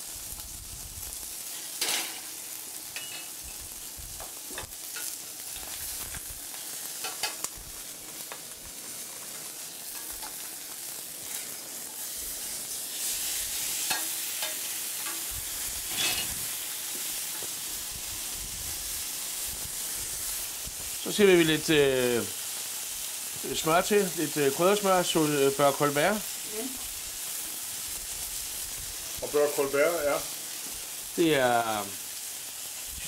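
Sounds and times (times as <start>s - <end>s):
fish sizzling in a pan: 0.0s - 33.0s.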